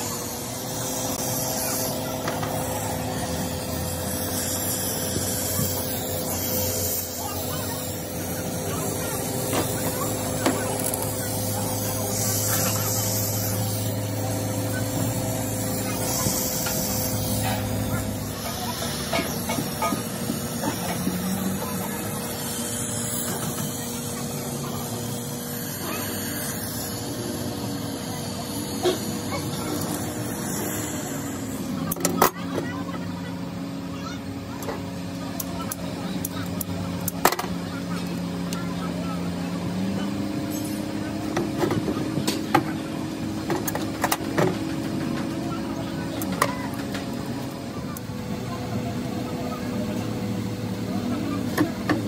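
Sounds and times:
gas torch flame hissing: 0.0s - 32.2s.

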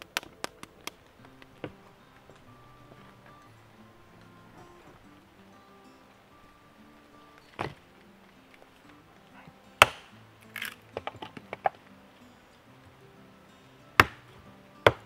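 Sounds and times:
hatchet splitting log: 9.8s - 11.8s, 14.0s - 15.0s.

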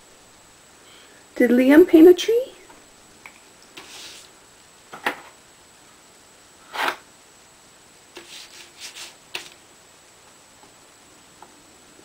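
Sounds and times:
paintbrush scrubbing on paper: 3.8s - 4.3s, 8.2s - 9.6s.

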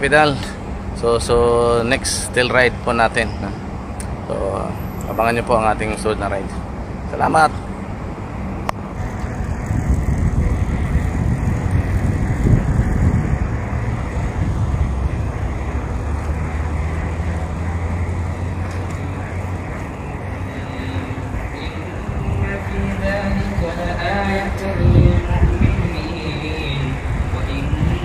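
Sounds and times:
traffic rumble: 0.0s - 28.0s
vehicle engine hum: 0.0s - 28.0s.

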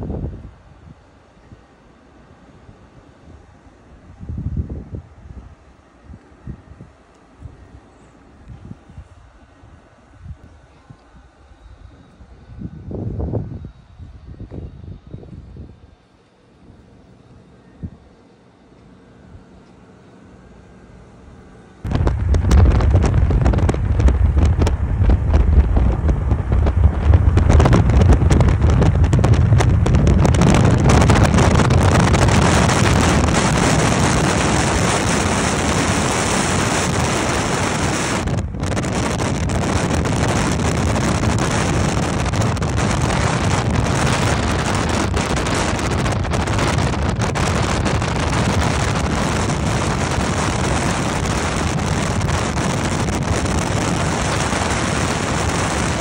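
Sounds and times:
wind buffeting microphone: 0.0s - 1.0s, 2.6s - 7.8s, 8.4s - 16.0s, 21.8s - 56.0s
road and tyre noise: 21.9s - 56.0s.

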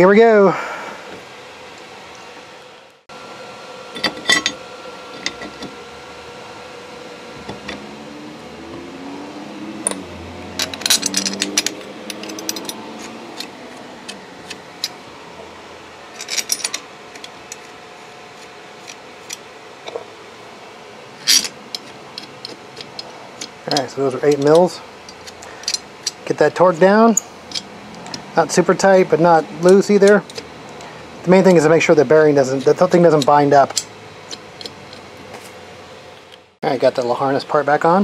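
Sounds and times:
metal clinks and knocks: 10.6s - 13.5s, 16.1s - 17.7s.

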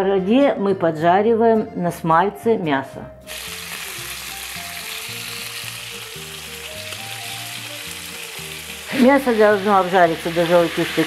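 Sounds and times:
meat sizzling in frying pan: 3.3s - 11.0s.

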